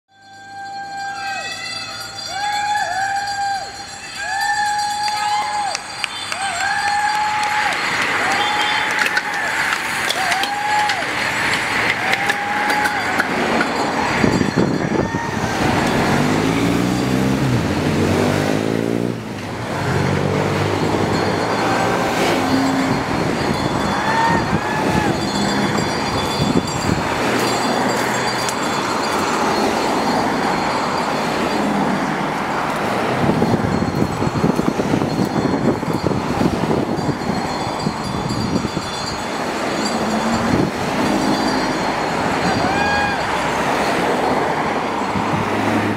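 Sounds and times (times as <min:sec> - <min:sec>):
cars and motorcycles driving past: 0:06.0 - 0:45.9
engine speeding up: 0:15.4 - 0:33.8.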